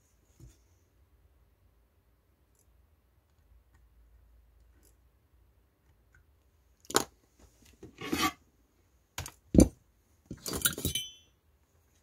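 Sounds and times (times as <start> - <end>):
tool scraping on workbench: 7.9 - 8.4
tools clattering: 10.3 - 11.3.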